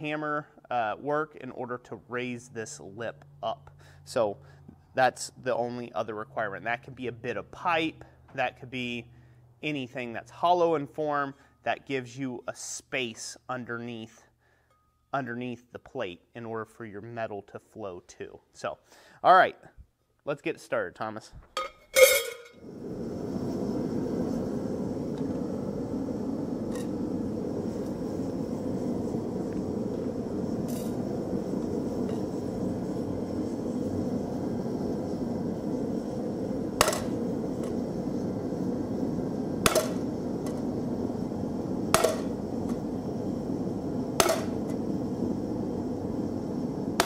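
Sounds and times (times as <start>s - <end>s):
gas forge burner rushing: 22.5s - 47.0s
hammer blows on steel: 44.2s - 44.7s.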